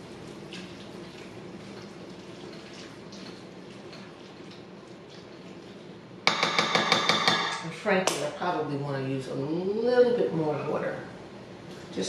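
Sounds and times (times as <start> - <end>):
wet stirring in bowl: 0.0 - 7.5
utensil clattering on metal bowl: 6.3 - 7.6.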